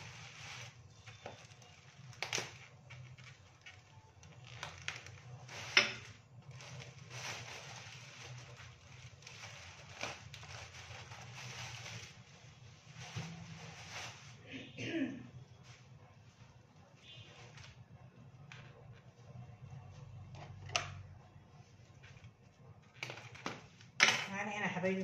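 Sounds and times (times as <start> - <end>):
plastic bag rustling and crinkling: 0.0 - 14.7.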